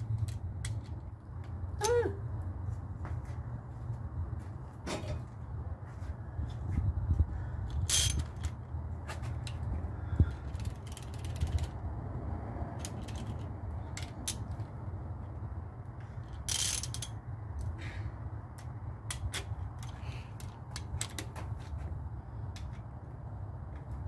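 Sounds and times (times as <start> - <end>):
steady low rumble: 0.0 - 24.0
ratchet wrench clicking: 7.7 - 8.6, 10.5 - 11.8, 12.8 - 14.6, 16.2 - 17.2.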